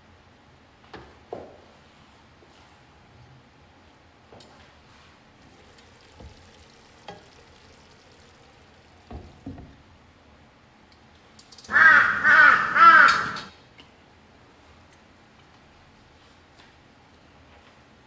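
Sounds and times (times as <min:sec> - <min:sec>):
crow cawing: 0:11.7 - 0:13.5.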